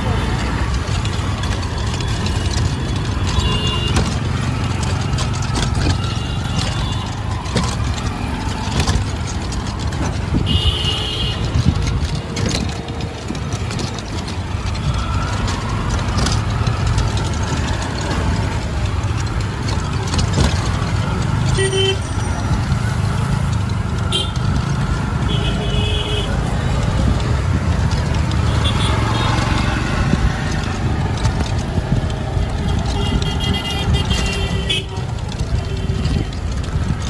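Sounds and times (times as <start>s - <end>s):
street traffic engines rumbling: 0.0s - 37.0s.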